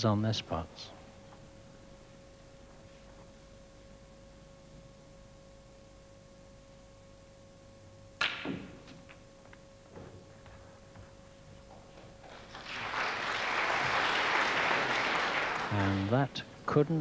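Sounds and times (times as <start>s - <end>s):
faint steady hum: 0.0s - 17.0s
cue striking ball: 8.2s - 9.3s
balls knocking together: 8.2s - 12.8s.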